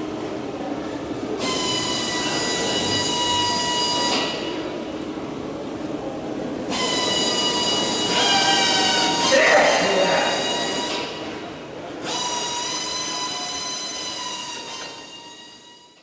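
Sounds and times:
power tool whining: 0:06.7 - 0:11.2, 0:12.0 - 0:16.0.

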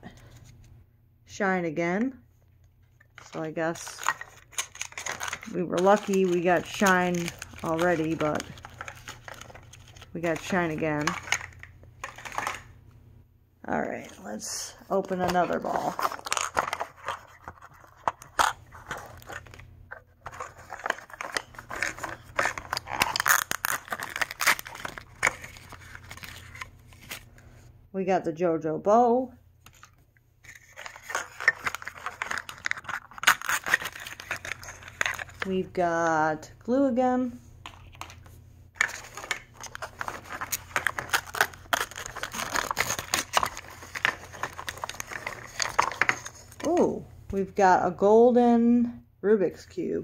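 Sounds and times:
plastic wrappers crinkling and tearing: 0:03.2 - 0:12.7, 0:15.0 - 0:19.6, 0:20.2 - 0:27.3, 0:30.5 - 0:35.5, 0:38.8 - 0:46.8.

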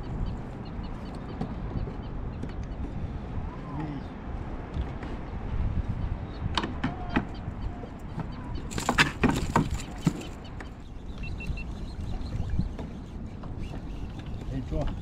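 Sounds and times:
low rumble of wind and water: 0:00.0 - 0:15.0
fishing gear clicking and knocking: 0:08.7 - 0:10.4.

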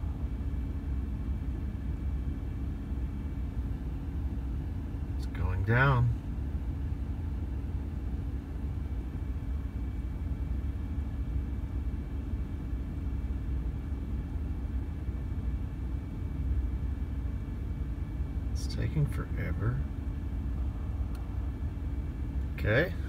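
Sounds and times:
heater blower running: 0:00.0 - 0:23.0
low rumble: 0:19.8 - 0:23.0.

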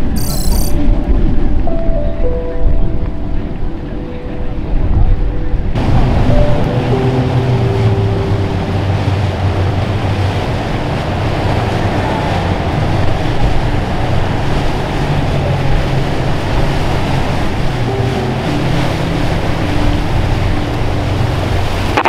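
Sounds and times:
boat engines humming: 0:00.0 - 0:22.0
wind on microphone: 0:00.0 - 0:22.0
wake water rushing: 0:05.0 - 0:22.0.

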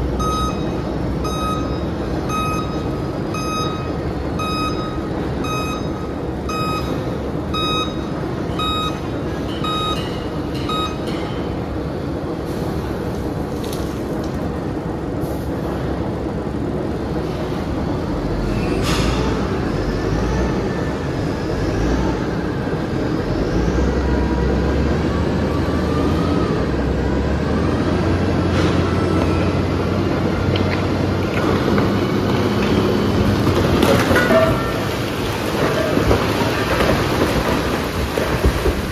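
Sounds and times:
heavy machinery rumble: 0:00.0 - 0:38.9
truck reversing alarm beeping: 0:00.1 - 0:11.3.

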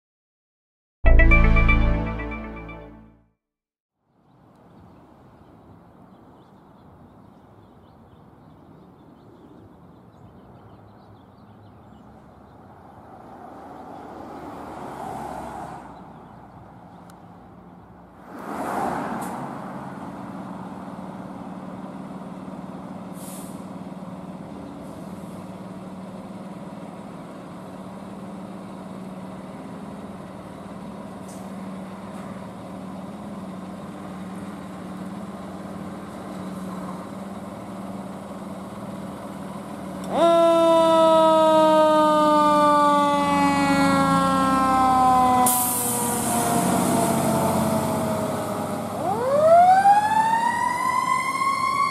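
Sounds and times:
siren with falling pitch: 0:01.1 - 0:03.2, 0:40.1 - 0:51.9
fire engine running: 0:19.8 - 0:51.9.

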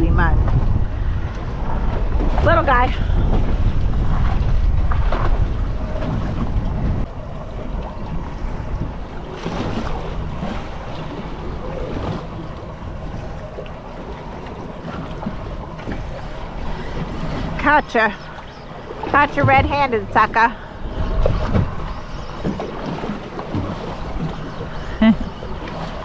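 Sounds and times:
choppy sea washing: 0:00.0 - 0:26.0
wind buffeting microphone: 0:00.0 - 0:26.0.

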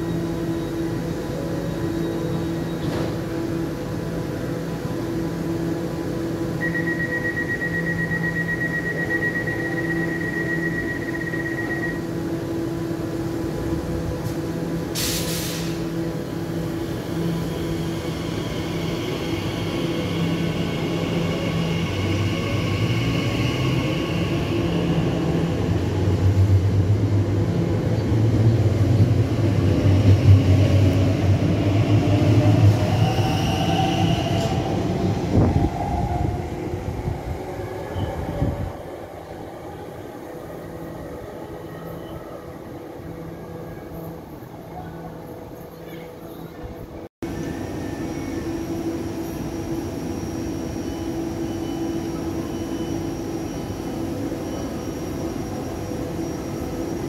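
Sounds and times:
short hiss: 0:15.0 - 0:15.8.

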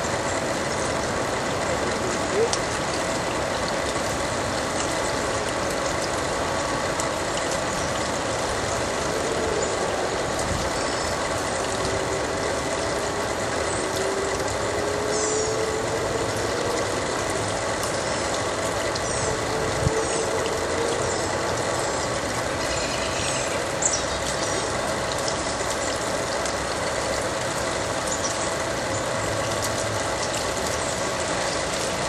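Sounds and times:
fountain jet splashing: 0:00.0 - 0:32.0.

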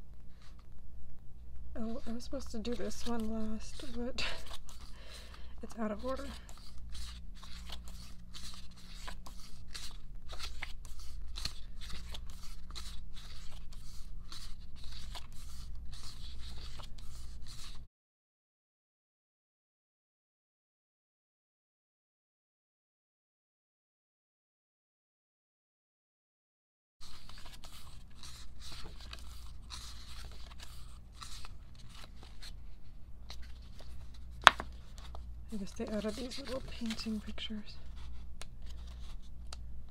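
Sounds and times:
low steady hum: 0:00.0 - 0:17.8, 0:27.0 - 0:39.9
paper and plastic rustling: 0:01.8 - 0:17.9, 0:27.0 - 0:39.6.

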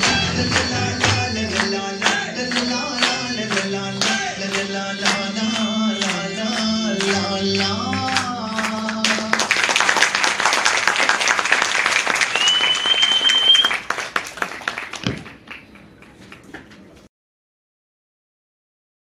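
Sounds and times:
dance song: 0:00.0 - 0:09.8
audience applause: 0:00.0 - 0:17.0
high whistle: 0:12.3 - 0:13.8.

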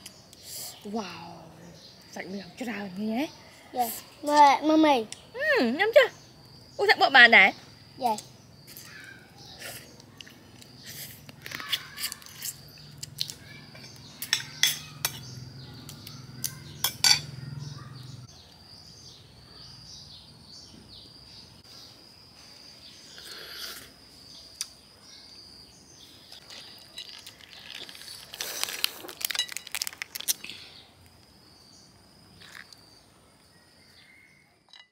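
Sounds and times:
spoons clinking on plates: 0:13.8 - 0:15.3, 0:16.8 - 0:17.4
crayfish shells cracking: 0:26.3 - 0:31.2.

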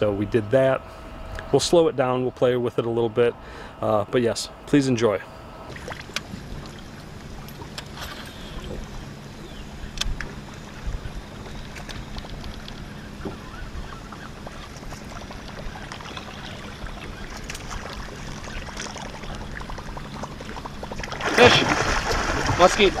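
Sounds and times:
steady low hum: 0:00.0 - 0:23.0
water lapping against boat hull: 0:05.6 - 0:23.0.

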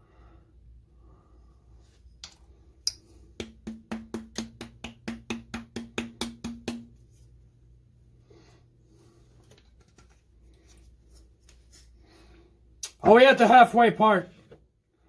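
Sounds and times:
palm smacking glass bottle: 0:02.2 - 0:07.0.

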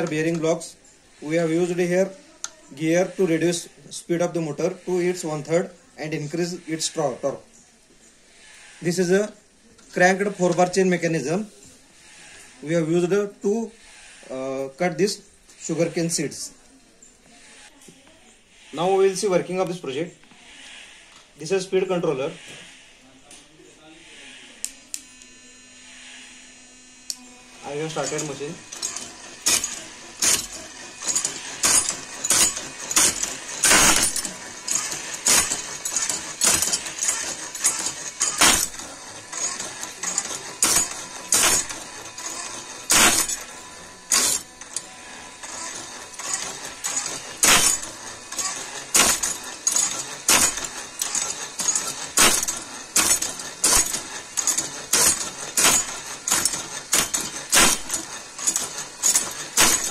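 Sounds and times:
cutting machine metallic clacks: 0:00.0 - 0:07.0, 0:27.1 - 0:59.9.

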